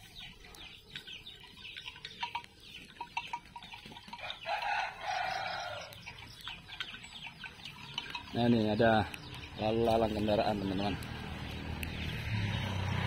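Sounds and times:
birds chirping and clucking: 0.0s - 13.0s
rooster crowing: 4.2s - 6.0s.

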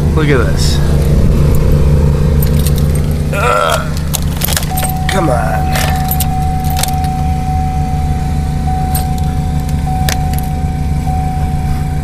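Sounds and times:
engine humming: 0.0s - 12.0s
constant high tone: 2.3s - 12.0s
keys jingling: 2.4s - 3.2s, 3.9s - 7.2s, 8.8s - 10.6s.

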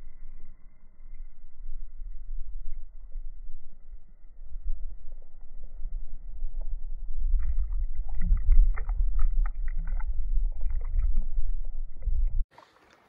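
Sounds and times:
wind rumble on microphone: 0.0s - 12.5s
water splashing and sloshing: 6.6s - 13.0s
small splashes and knocks: 12.5s - 13.0s.

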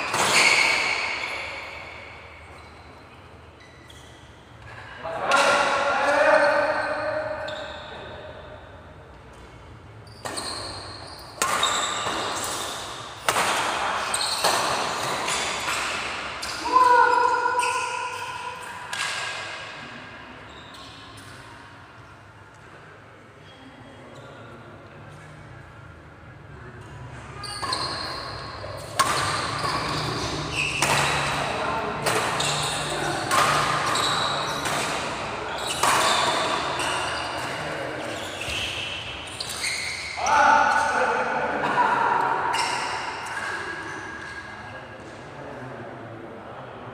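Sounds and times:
racket striking shuttlecock: 0.1s - 1.2s, 11.4s - 16.3s, 28.8s - 37.6s.

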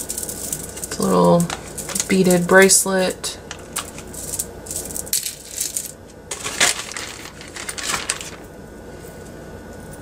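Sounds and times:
plastic bag crinkling: 3.6s - 8.5s
metal jewelry clinking: 3.7s - 8.4s.

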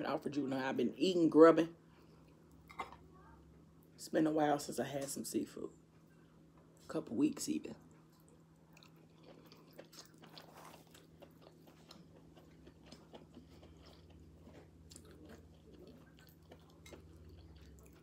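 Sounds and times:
low steady hum: 0.0s - 18.0s
chewing food: 7.8s - 18.0s.

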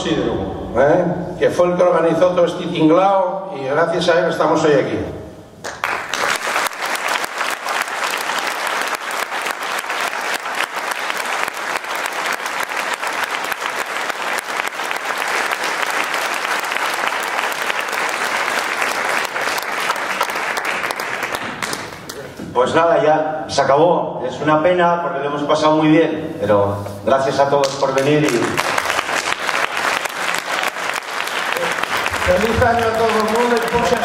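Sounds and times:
audience applauding: 5.6s - 22.3s, 27.6s - 34.0s.

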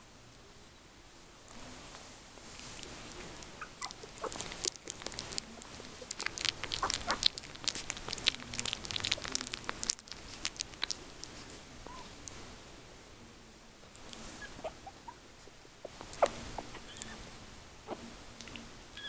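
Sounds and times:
puppy squeaks: 3.6s - 4.6s, 14.4s - 15.2s, 16.2s - 17.2s
puppy licking with wet clicks: 3.8s - 11.4s, 16.0s - 16.4s.

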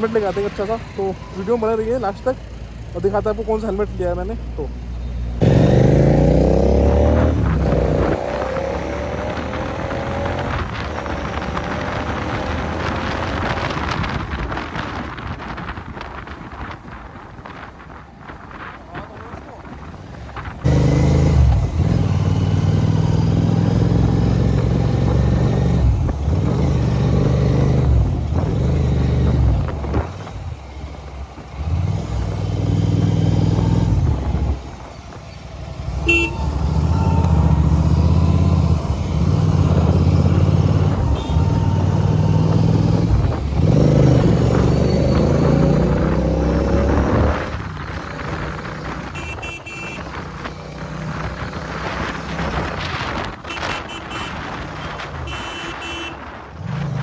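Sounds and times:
motorcycle engine accelerating: 5.4s - 14.2s, 20.6s - 30.7s, 31.5s - 49.3s.

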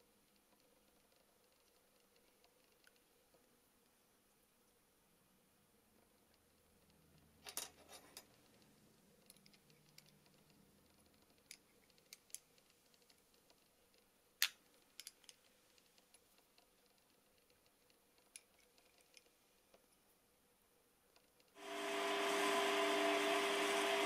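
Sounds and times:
small metallic clicks and taps: 6.2s - 20.0s.

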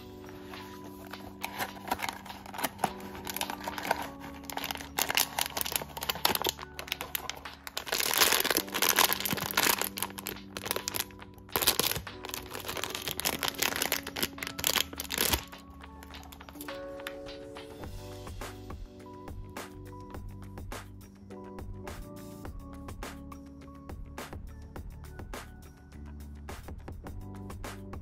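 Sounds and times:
soft background music: 0.0s - 28.0s
crinkly plastic bag rustling: 0.3s - 16.8s.

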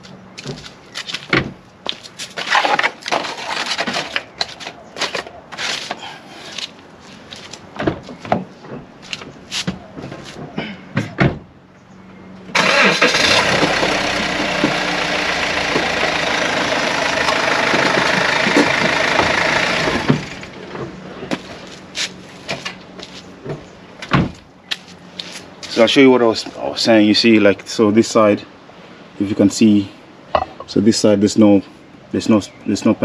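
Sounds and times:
car engine running: 12.2s - 24.2s.

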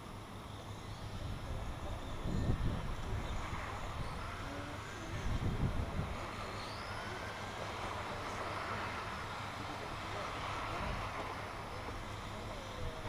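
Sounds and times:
electric motors whining: 0.4s - 13.0s
wind rumble on microphone: 1.2s - 8.9s.

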